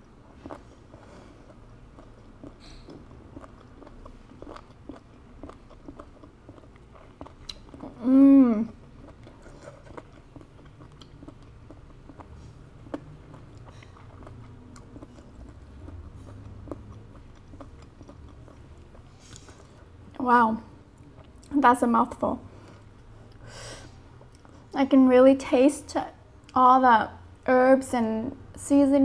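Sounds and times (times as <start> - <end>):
mouth chewing with wet smacks: 0.0 - 8.0, 8.7 - 20.2, 20.9 - 21.6
person humming: 8.0 - 8.7.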